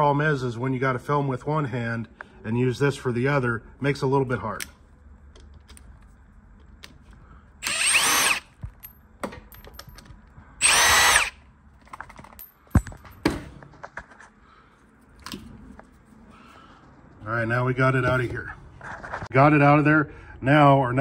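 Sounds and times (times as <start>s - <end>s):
parts clicking and knocking: 4.6s - 10.4s, 11.8s - 14.2s
cordless power driver whirring: 7.6s - 8.5s, 10.6s - 11.4s.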